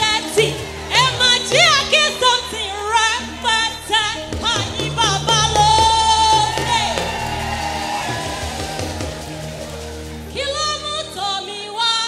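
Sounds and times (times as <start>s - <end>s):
woman singing into microphone: 0.0s - 7.4s, 10.3s - 12.0s
instrumental backing with bass: 0.0s - 11.9s.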